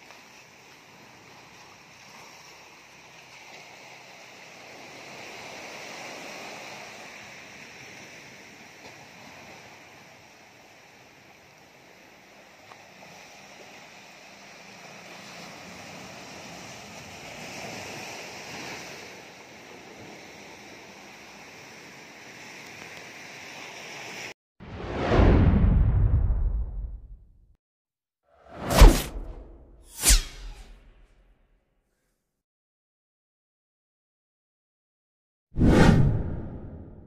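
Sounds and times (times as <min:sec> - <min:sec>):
sea waves washing on sand: 0:00.0 - 0:24.3.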